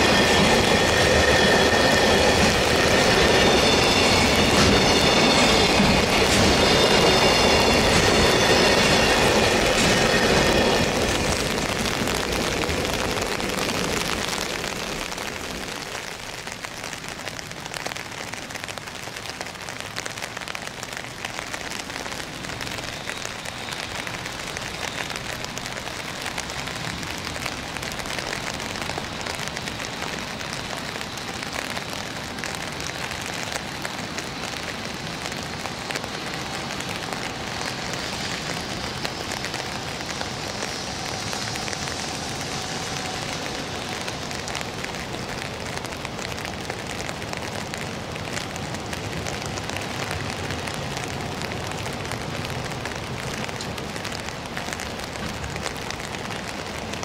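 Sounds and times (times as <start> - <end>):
faint distant train whine: 0.0 - 57.0
rain hissing: 0.0 - 57.0
train passing: 0.0 - 57.0.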